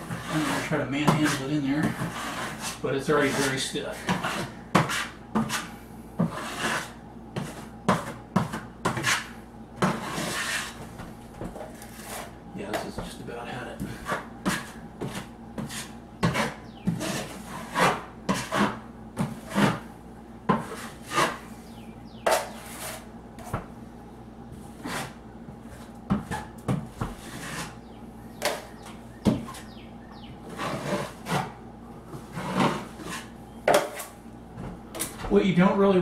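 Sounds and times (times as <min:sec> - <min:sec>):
taping knife scraping joint compound: 0:00.0 - 0:10.8, 0:11.6 - 0:12.4, 0:13.8 - 0:19.9, 0:20.5 - 0:21.4, 0:22.2 - 0:23.5, 0:24.8 - 0:25.2, 0:27.2 - 0:27.8.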